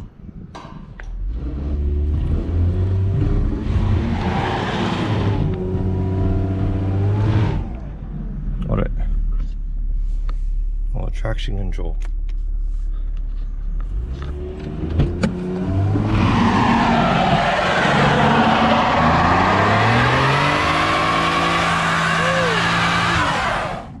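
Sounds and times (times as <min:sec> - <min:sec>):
car engine idling and revving: 0:00.6 - 0:24.0
tyres spinning and squealing: 0:03.5 - 0:05.5, 0:15.6 - 0:24.0.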